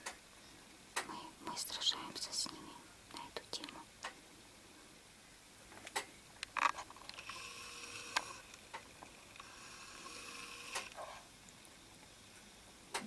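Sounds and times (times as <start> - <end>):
camcorder zoom motor whining: 7.1 - 8.6, 9.2 - 11.0.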